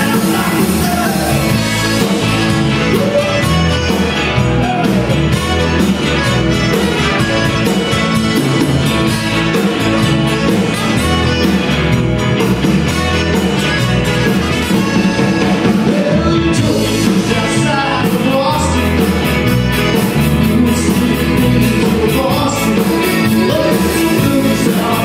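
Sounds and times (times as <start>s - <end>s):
man singing: 0.0s - 2.0s, 15.2s - 19.3s, 20.0s - 25.0s
accordion: 0.0s - 25.0s
electric guitar: 0.0s - 25.0s
keyboard: 0.0s - 25.0s
steady drum beat: 0.0s - 25.0s.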